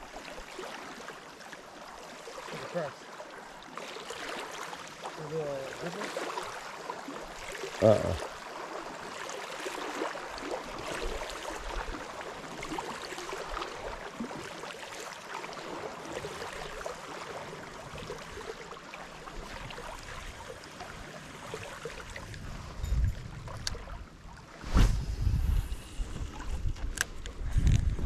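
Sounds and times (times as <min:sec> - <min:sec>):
small waves lapping: 0:00.0 - 0:28.0.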